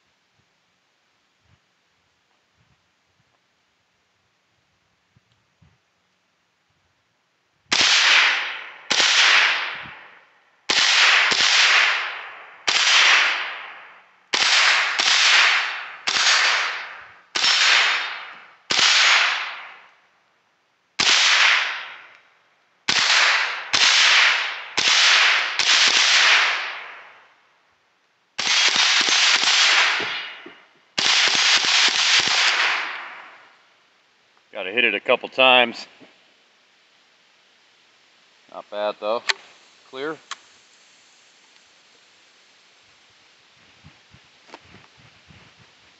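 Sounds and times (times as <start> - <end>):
rifle shots: 7.7 - 19.8, 21.0 - 22.1, 22.9 - 27.2, 28.4 - 33.5.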